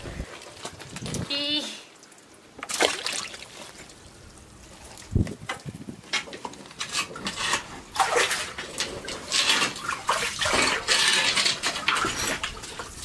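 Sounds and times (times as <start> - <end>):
net splashing through water: 2.6 - 3.9, 7.9 - 12.9.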